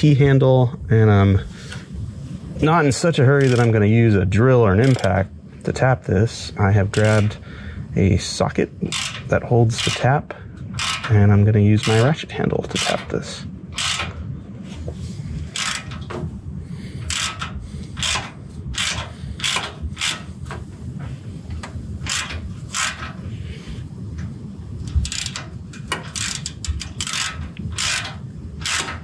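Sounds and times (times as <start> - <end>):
ratchet pawl clicking: 3.3 - 3.8, 4.8 - 5.2, 6.9 - 7.3, 8.8 - 10.1, 10.7 - 11.2, 11.8 - 13.1, 13.7 - 14.2, 15.5 - 16.2, 17.0 - 20.5, 21.6 - 23.2, 24.8 - 29.0.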